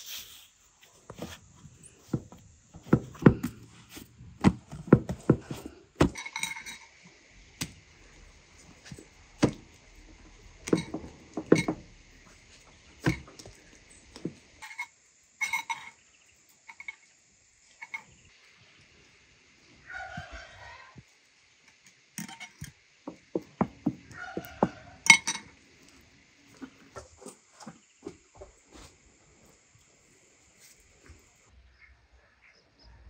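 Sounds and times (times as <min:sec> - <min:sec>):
hands patting and slapping dough: 0:07.6 - 0:07.8.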